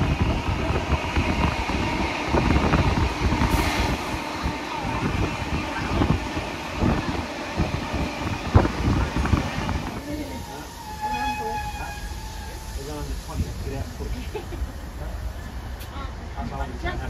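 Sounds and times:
wind blowing past window: 0:00.0 - 0:10.4
train wheels rumbling on rail: 0:00.0 - 0:17.0.

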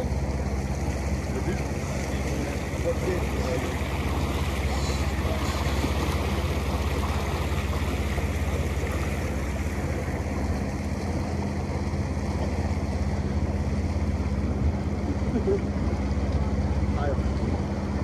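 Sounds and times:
boat engine humming: 0:00.0 - 0:18.0
water rushing: 0:00.0 - 0:18.0.

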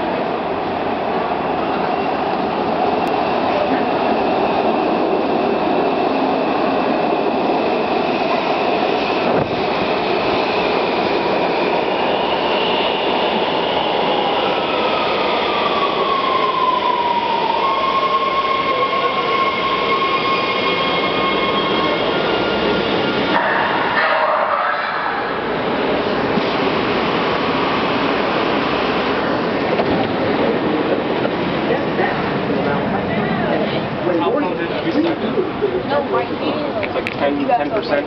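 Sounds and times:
subway train rumbling: 0:00.0 - 0:38.0
train braking whine: 0:15.5 - 0:24.1.

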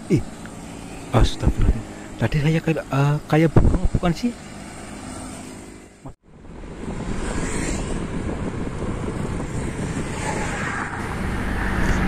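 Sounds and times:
road traffic noise: 0:00.0 - 0:12.0
wind buffeting microphone: 0:01.1 - 0:01.9, 0:06.4 - 0:12.0.

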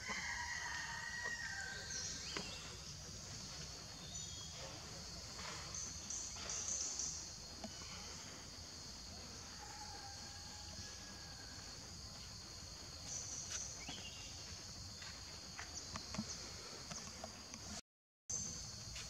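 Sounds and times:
insects buzzing chorus: 0:00.0 - 0:19.0.

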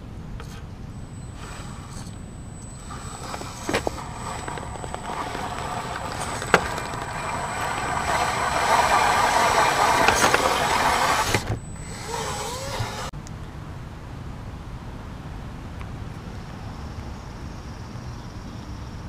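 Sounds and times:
electric motor whining: 0:00.4 - 0:13.1.

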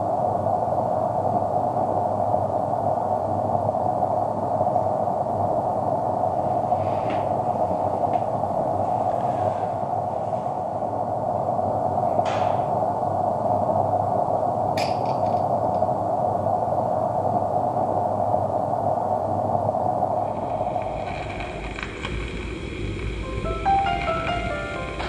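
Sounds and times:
steam locomotive hissing: 0:20.2 - 0:25.0.

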